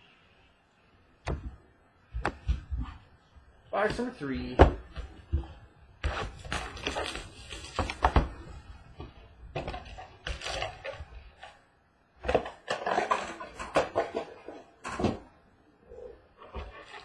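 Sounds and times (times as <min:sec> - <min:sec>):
cardboard box crinkling and scraping: 0:06.1 - 0:08.5.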